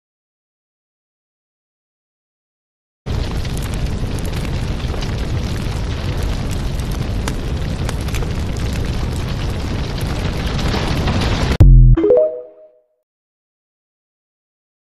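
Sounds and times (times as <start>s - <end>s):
fire burning: 3.1s - 11.6s
fire crackling: 3.1s - 11.6s.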